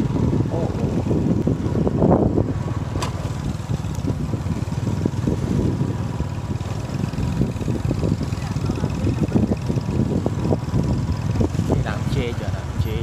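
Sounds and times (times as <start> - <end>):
engine and road noise rumble: 0.0 - 13.0.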